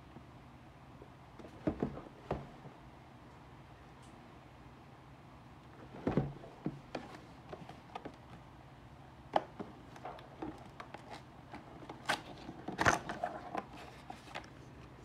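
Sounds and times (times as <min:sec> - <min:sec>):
cardboard scraping rustle: 0:11.0 - 0:14.6.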